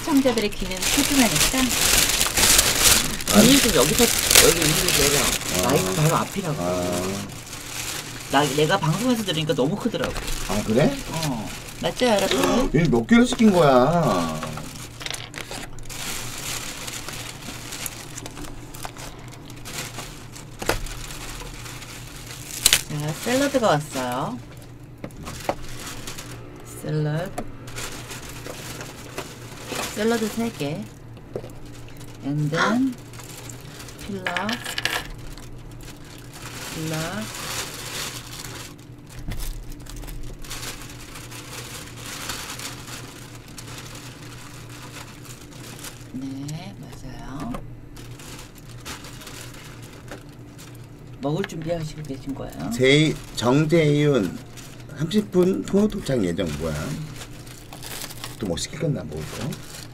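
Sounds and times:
plastic bag crinkling: 0.0 - 59.9.

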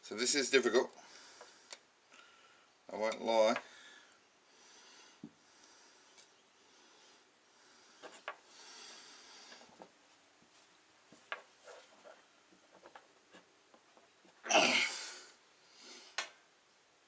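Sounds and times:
effortful breathing through nose: 3.7 - 9.8.

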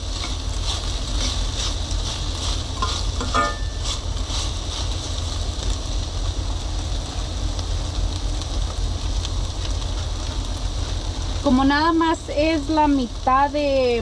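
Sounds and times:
chicken sizzling in a pot: 0.0 - 14.0
steady low rumble: 0.0 - 14.0
metal spoon scraping pot: 2.8 - 4.0.

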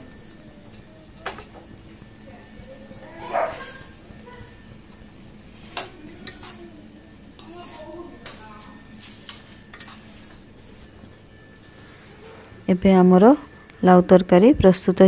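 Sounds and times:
curry sizzling: 0.0 - 12.5
spatula clicking and scraping pan: 5.6 - 6.6, 7.3 - 8.4, 9.0 - 10.7.

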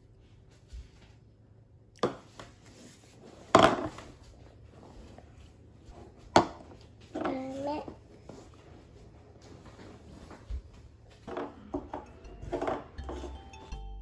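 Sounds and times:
small child vocal sound: 7.2 - 8.0.

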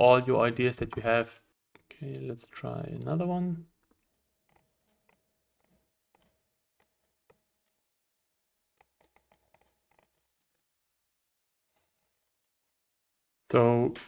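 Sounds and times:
computer mouse and keyboard clicks: 3.8 - 8.0, 8.6 - 10.8.

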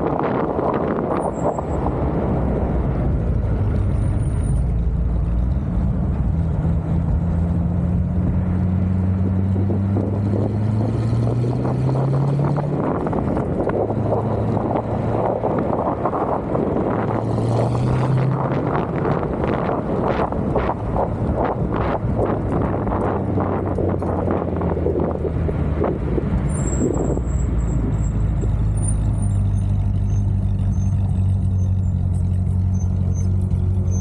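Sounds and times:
engine running: 0.0 - 34.0
wind buffeting microphone: 9.2 - 27.3.

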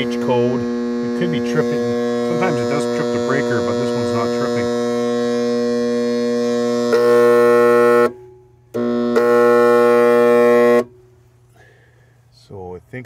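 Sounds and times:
pump motor electrical hum: 0.0 - 10.9.

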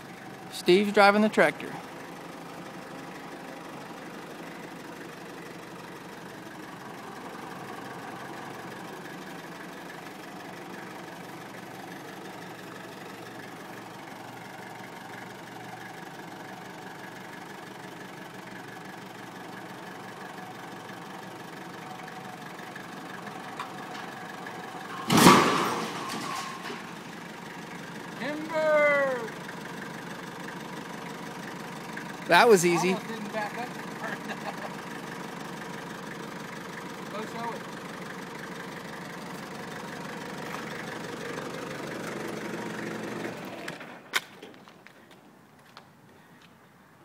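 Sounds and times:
tractor diesel engine running: 0.0 - 46.4
steel winch crashing onto ground: 24.9 - 27.0.

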